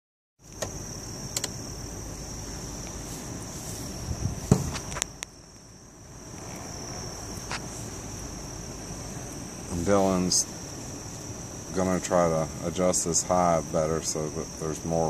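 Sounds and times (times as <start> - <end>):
crickets chirping: 0.4 - 15.0
sharp clicks: 0.5 - 1.6
knock: 4.5 - 4.7.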